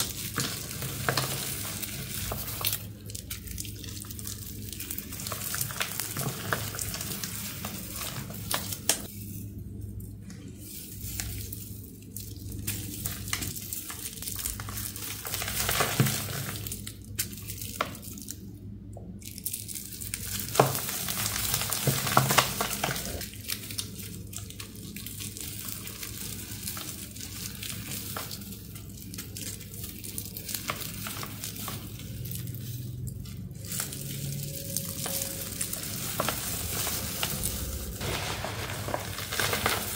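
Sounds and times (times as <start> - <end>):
hands crushing crumbly block: 0.0 - 9.1, 10.9 - 18.4, 33.2 - 39.9.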